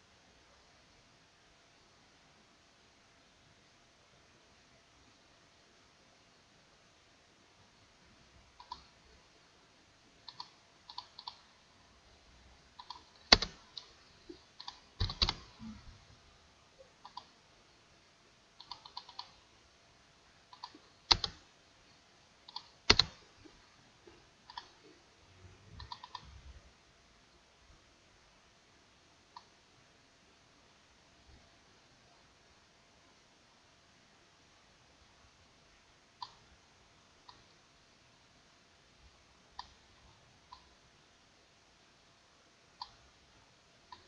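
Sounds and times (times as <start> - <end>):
mouse and keyboard clicking: 8.6 - 9.0, 10.2 - 11.6, 12.7 - 15.8, 17.0 - 17.4, 18.6 - 19.5, 20.5 - 21.4, 22.4 - 23.5, 24.4 - 24.9, 25.8 - 26.4, 36.2 - 36.5, 37.2 - 37.6, 39.5 - 40.8, 42.8 - 43.1.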